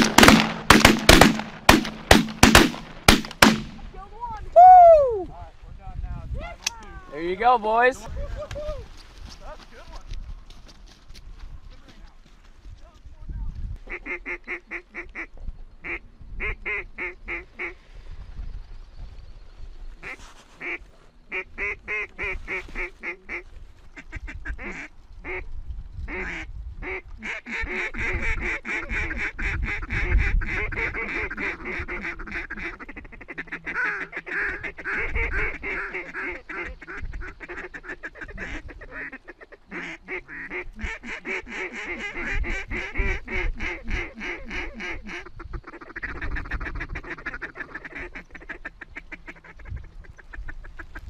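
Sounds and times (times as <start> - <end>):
flock of waterfowl calling: 26.1 - 51.0.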